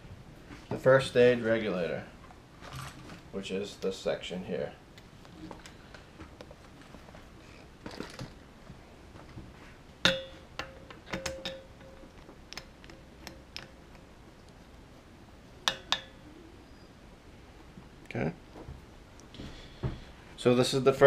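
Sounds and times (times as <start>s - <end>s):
metal clinks: 10.0s - 14.0s.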